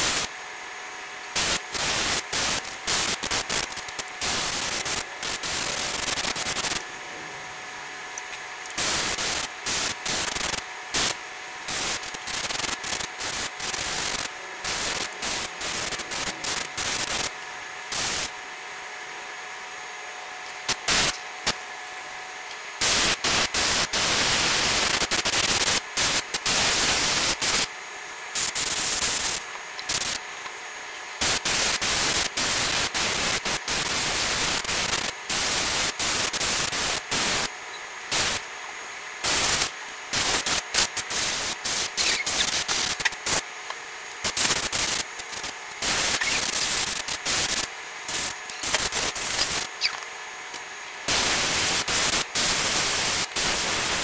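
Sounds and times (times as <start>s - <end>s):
airbrush hissing in bursts: 1.3s - 6.8s, 8.8s - 18.3s, 22.8s - 27.7s, 28.3s - 30.2s, 31.2s - 37.5s, 38.1s - 38.5s, 39.2s - 43.4s, 44.2s - 50.0s, 51.1s - 54.0s.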